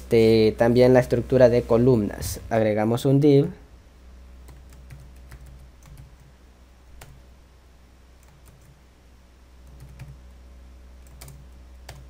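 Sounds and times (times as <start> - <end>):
low hum: 0.0 - 12.0
keyboard keystrokes: 4.5 - 6.3, 9.7 - 10.2, 11.0 - 12.0.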